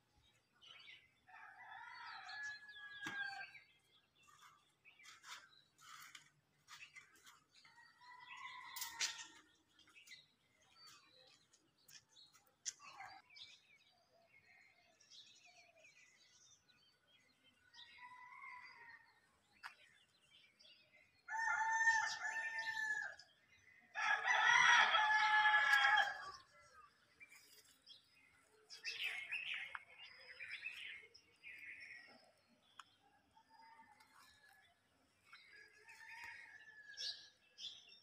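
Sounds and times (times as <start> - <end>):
rooster crowing: 24.0 - 26.4
small birds chirping: 25.0 - 36.9.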